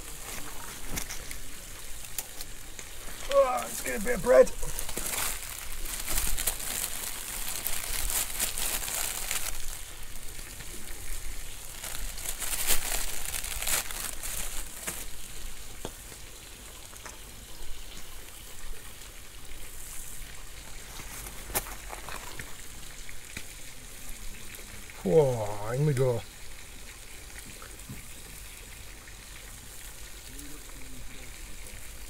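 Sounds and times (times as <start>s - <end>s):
scallops sizzling on coals: 0.0s - 32.0s.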